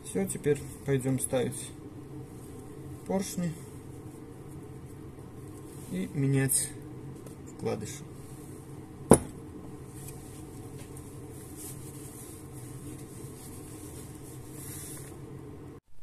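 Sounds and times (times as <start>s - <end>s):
low background hum: 0.0s - 16.0s
metal part knocking on workbench: 9.1s - 9.4s.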